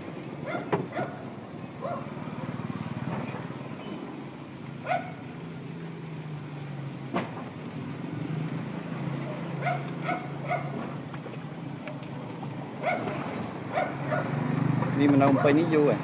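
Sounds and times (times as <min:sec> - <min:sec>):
small dog yapping: 0:00.4 - 0:01.2, 0:04.8 - 0:05.2, 0:09.6 - 0:10.8, 0:12.8 - 0:14.3.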